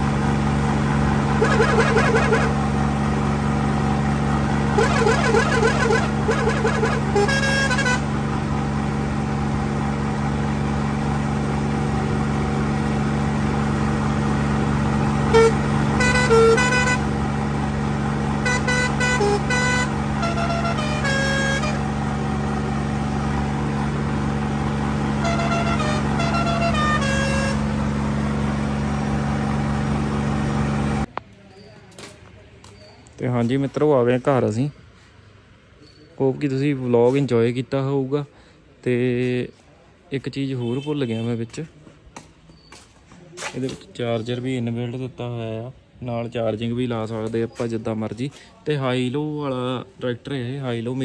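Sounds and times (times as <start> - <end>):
tractor diesel engine running: 0.0 - 40.4, 41.7 - 51.0
multi-tone pressure horn: 1.2 - 2.8, 4.6 - 8.3, 15.2 - 17.4, 18.3 - 22.9, 25.0 - 28.0.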